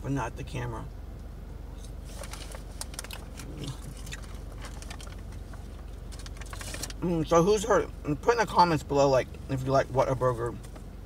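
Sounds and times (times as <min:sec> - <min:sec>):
car engine humming: 0:00.0 - 0:11.0
person chewing fries: 0:02.2 - 0:05.2.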